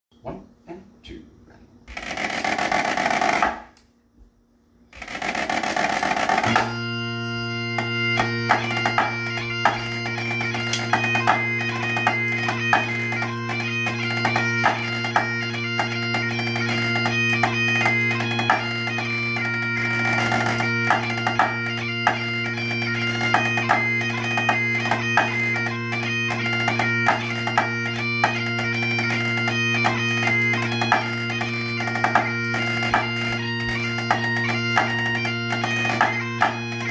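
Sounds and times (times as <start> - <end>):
bagpipes playing a tune: 1.9 - 3.7, 4.9 - 36.9
drumsticks tapping practice pad: 1.9 - 3.9, 5.0 - 6.8, 7.7 - 36.9.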